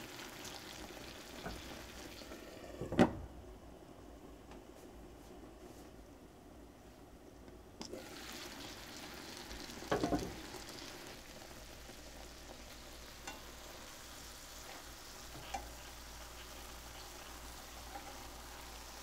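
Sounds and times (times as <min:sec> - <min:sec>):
sauce sizzling in a pan: 0:00.0 - 0:02.8, 0:07.8 - 0:19.0.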